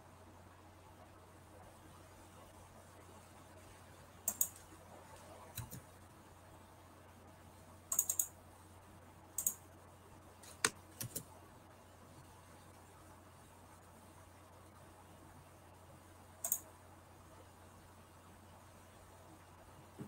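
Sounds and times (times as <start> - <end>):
faint steady hum: 0.0 - 20.0
computer clicking: 4.2 - 4.7, 5.5 - 5.9, 7.9 - 8.4, 9.4 - 9.6, 10.4 - 11.3, 16.4 - 16.7.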